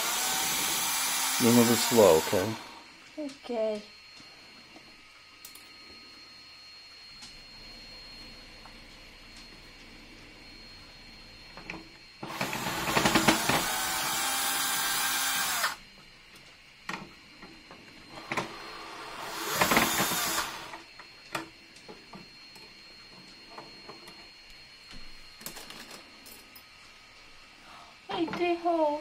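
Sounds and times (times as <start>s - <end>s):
cordless drill driving screws: 0.0s - 2.7s, 12.3s - 15.8s, 18.5s - 20.8s.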